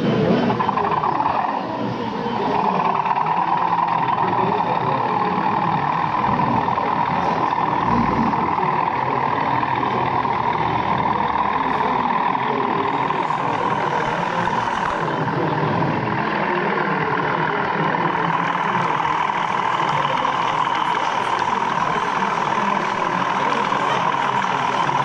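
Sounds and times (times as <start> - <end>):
background chatter: 0.0 - 25.0
model locomotive engine sound: 0.0 - 25.0.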